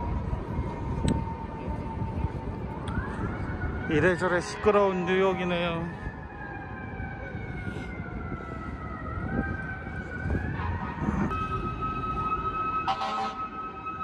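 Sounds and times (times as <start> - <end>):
emergency siren wailing: 0.0 - 14.0
street traffic noise: 0.0 - 14.0
short siren blast: 10.2 - 14.0.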